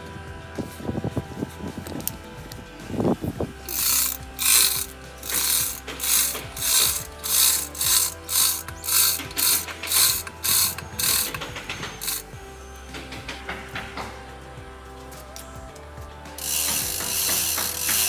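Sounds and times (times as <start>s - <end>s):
chain hoist ratcheting: 3.6s - 12.4s, 16.4s - 18.0s.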